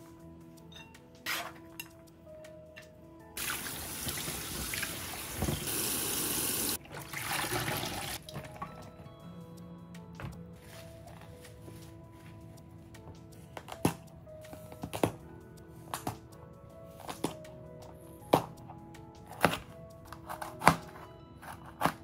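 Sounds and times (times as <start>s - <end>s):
tap water running hard: 3.4s - 8.2s.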